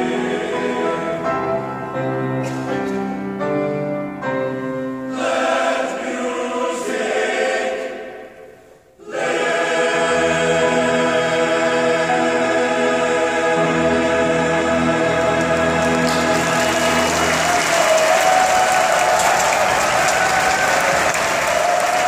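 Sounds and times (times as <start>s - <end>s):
men's chorus singing: 0.0s - 1.6s, 5.1s - 8.4s, 9.0s - 19.0s.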